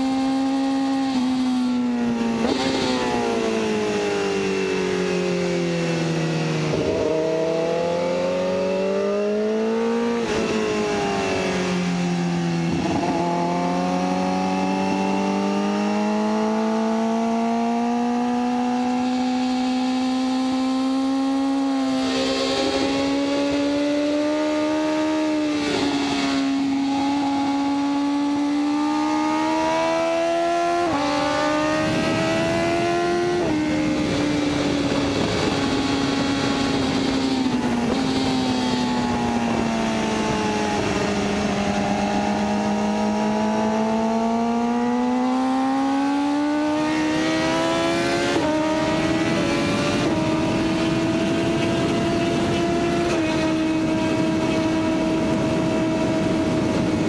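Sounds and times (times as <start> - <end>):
wind rushing over microphone: 0.0 - 57.0
sport-bike engine revving: 6.7 - 57.0.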